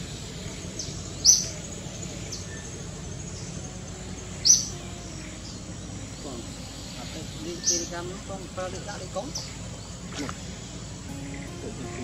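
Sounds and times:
bird chirping: 0:00.0 - 0:12.0
steady background hiss: 0:00.0 - 0:12.0.

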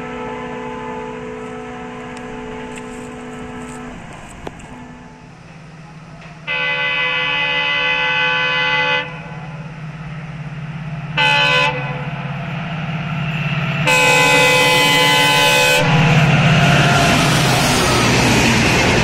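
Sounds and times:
train air horn: 0:00.0 - 0:05.4, 0:06.4 - 0:09.8, 0:11.1 - 0:12.4, 0:13.8 - 0:18.0
locomotive engine drone: 0:00.0 - 0:19.0
train rushing past: 0:00.0 - 0:19.0.

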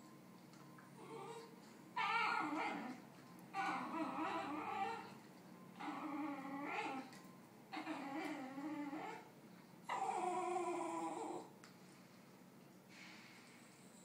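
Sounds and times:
dog whining: 0:01.0 - 0:11.6.

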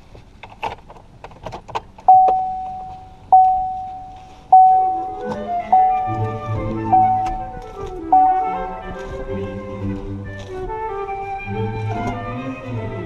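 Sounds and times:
car warning chime dinging: 0:02.1 - 0:09.2
background music: 0:04.6 - 0:13.0.

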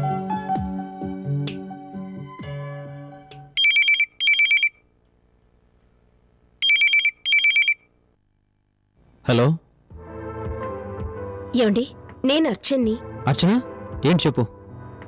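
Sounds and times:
telephone ringing electronic trill: 0:03.6 - 0:04.8, 0:06.6 - 0:07.9.

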